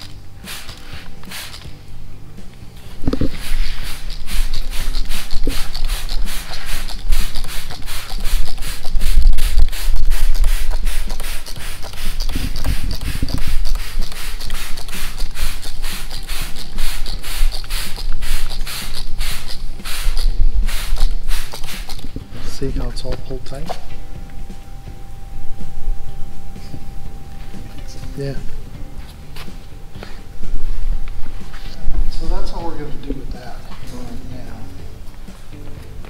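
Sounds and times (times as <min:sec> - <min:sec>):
spray bottle hissing squirts: 0:00.4 - 0:01.7, 0:03.1 - 0:22.6.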